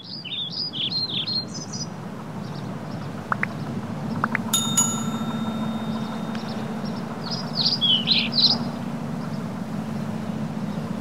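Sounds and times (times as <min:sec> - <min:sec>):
high chirps: 0:04.6 - 0:08.6
bright ringing chime: 0:04.6 - 0:08.8.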